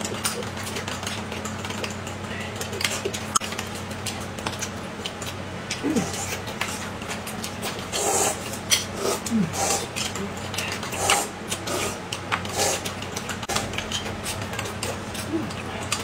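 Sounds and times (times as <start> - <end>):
steady low hum: 0.0 - 16.0
slurping and sipping: 5.7 - 16.0
blowing on hot food: 7.9 - 9.9.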